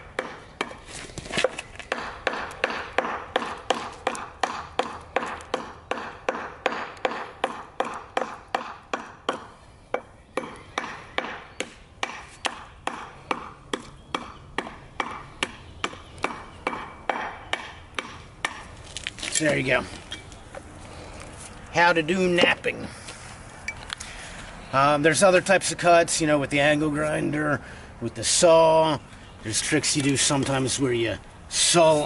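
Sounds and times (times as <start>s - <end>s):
hammer striking stone: 1.9s - 18.6s.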